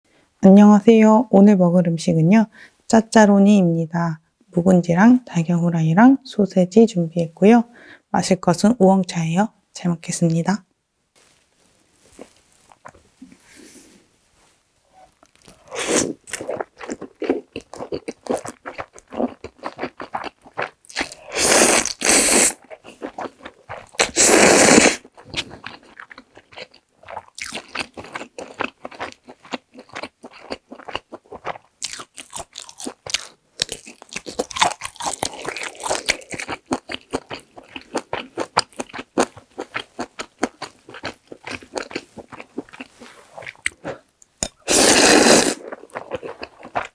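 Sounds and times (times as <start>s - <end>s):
wet chewing and mouth smacks: 15.1s - 24.2s, 24.9s - 46.9s
slurping noodles: 15.6s - 16.2s, 21.1s - 22.6s, 24.0s - 25.1s, 44.6s - 45.8s.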